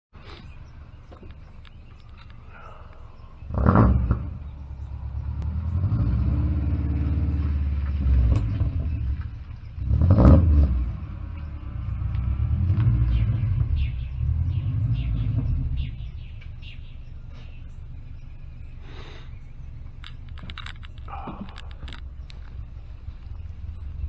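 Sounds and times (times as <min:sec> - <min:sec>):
car engine rumbling: 0:00.2 - 0:24.0.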